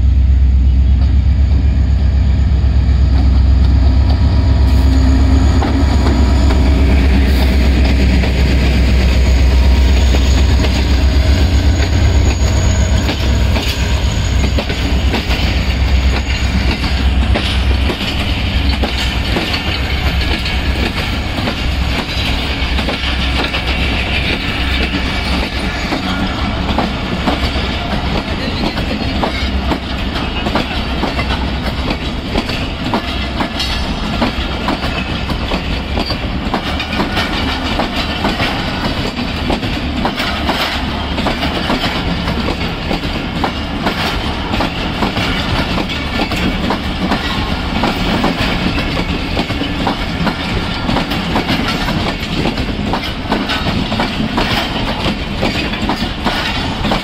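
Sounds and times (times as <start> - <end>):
train rumble and clatter: 0.0 - 57.0
wheels clicking over rail joints: 14.6 - 57.0.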